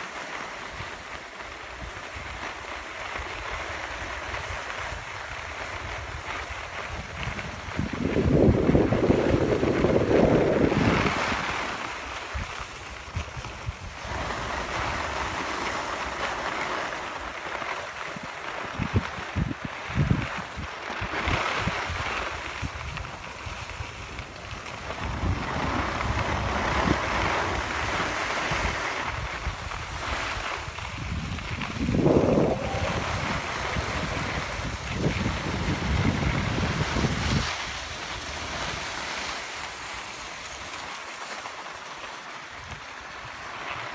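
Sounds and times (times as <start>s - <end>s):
skis sliding over snow: 0.0s - 43.9s
wind buffeting microphone: 3.5s - 16.1s, 18.1s - 39.2s.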